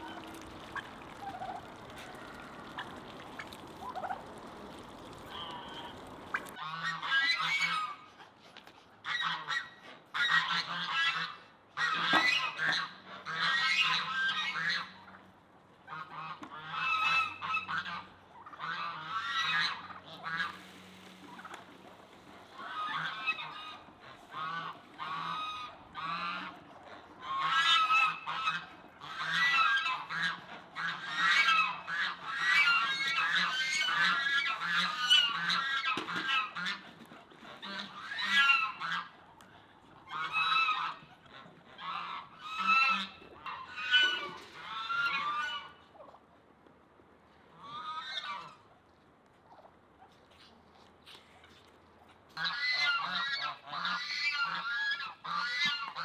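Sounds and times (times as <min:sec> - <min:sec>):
geese honking: 0:00.0 - 0:08.0, 0:15.9 - 0:39.1, 0:40.1 - 0:41.1, 0:41.8 - 0:45.8, 0:52.4 - 0:56.0.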